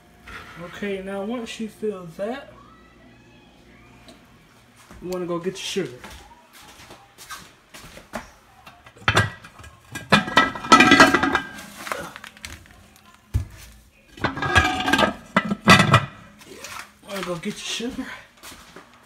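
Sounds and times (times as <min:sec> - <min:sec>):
dishes and utensils clattering: 0:08.7 - 0:12.6, 0:13.4 - 0:16.4.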